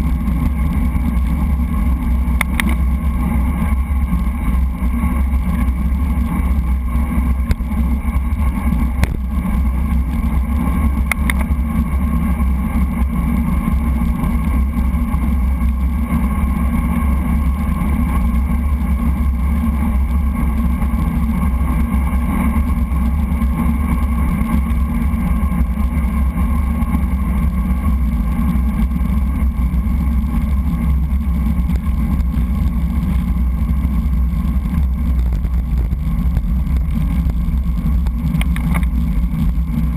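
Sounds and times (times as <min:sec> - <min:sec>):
bicycle road vibration rumble: 0:00.0 - 0:39.9
wind rushing over camera: 0:00.0 - 0:39.9
small clicks: 0:02.4 - 0:02.8, 0:11.0 - 0:11.5, 0:38.0 - 0:39.0.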